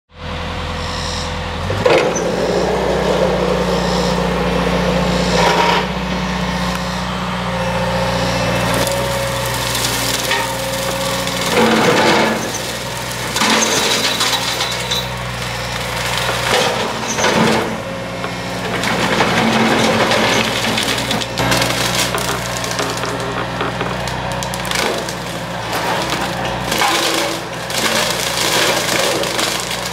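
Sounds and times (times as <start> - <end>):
diesel engine running: 0.1 - 29.9
branches cracking and splintering: 8.5 - 29.9.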